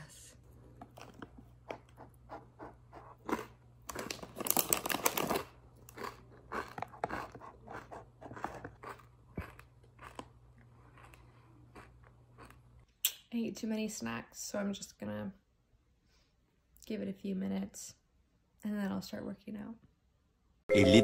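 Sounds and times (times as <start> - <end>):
crackers crunching and chewing: 3.1 - 12.8.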